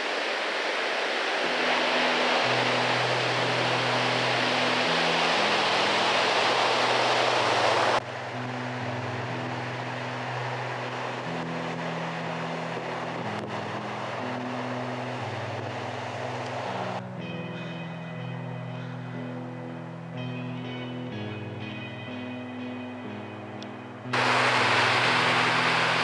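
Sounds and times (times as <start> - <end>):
surf breaking on beach: 0.0 - 17.0, 24.1 - 26.0
low music drone: 0.0 - 26.0.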